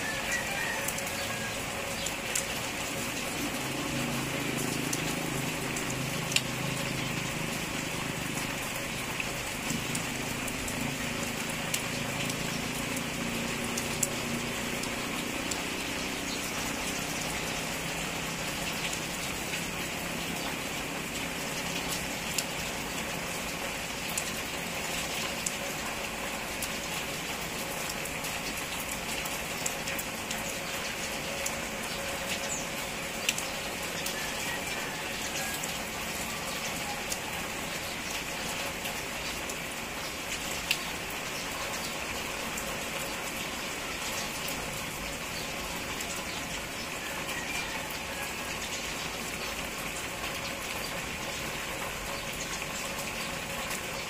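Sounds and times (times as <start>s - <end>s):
steady rain falling: 0.0s - 54.0s
sharp drip ticks: 0.8s - 46.8s.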